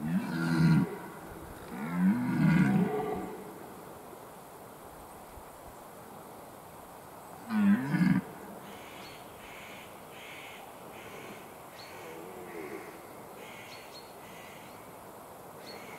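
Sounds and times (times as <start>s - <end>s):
deer stag roaring: 0.0s - 3.5s.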